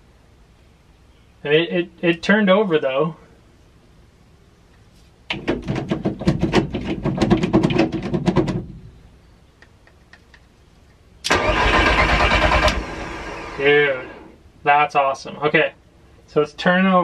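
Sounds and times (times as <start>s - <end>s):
engine cranking on starter: 11.2s - 14.3s.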